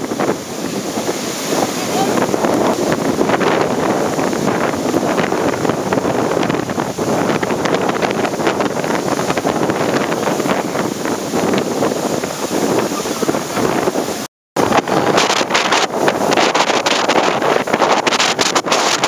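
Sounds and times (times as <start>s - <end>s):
strong wind buffeting microphone: 0.0s - 19.0s
surf breaking on sand: 0.0s - 19.0s.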